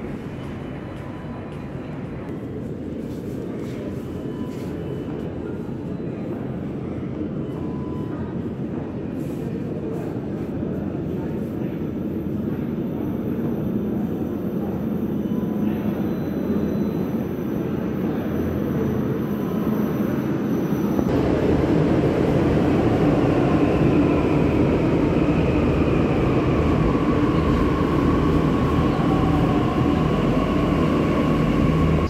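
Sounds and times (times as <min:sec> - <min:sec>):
train rumbling on rails: 0:00.0 - 0:32.0.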